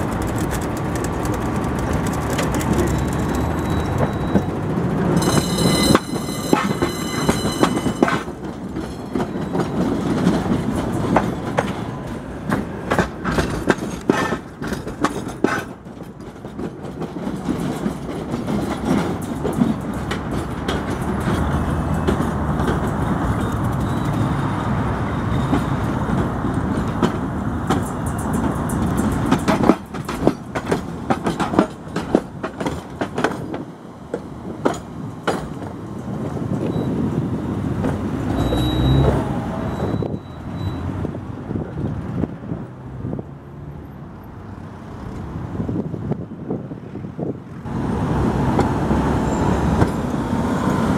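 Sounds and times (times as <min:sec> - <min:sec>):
wheels clacking over rail joints: 0:00.0 - 0:42.7, 0:47.6 - 0:50.9
trams rumbling past: 0:00.0 - 0:50.9
high-pitched ringing tone: 0:05.2 - 0:08.0.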